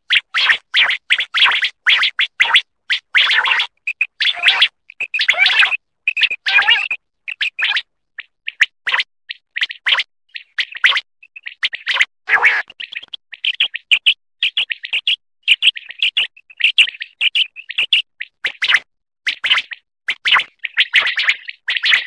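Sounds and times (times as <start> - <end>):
quail chirping: 0.1 - 8.7.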